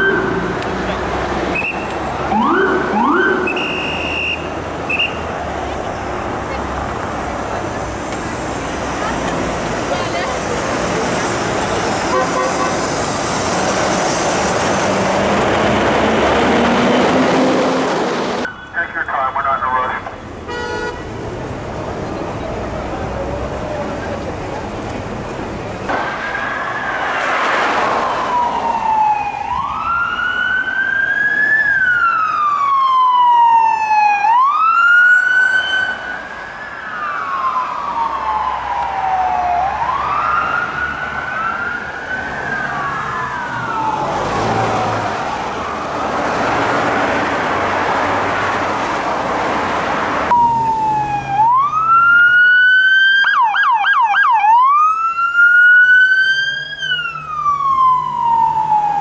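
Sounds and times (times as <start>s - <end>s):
siren yelp: 0.0s - 0.6s, 1.5s - 5.2s, 27.9s - 46.1s, 50.3s - 59.0s
police siren wailing: 0.0s - 5.4s, 25.9s - 47.3s, 50.3s - 59.0s
road noise: 0.0s - 59.0s.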